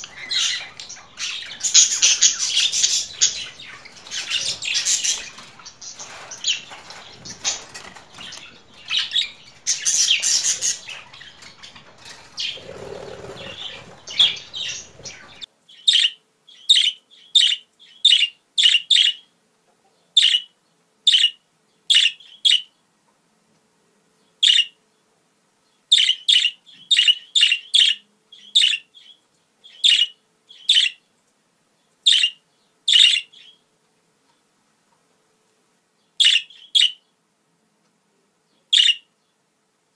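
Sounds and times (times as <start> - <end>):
budgerigar warbling chatter: 0.0 - 15.5.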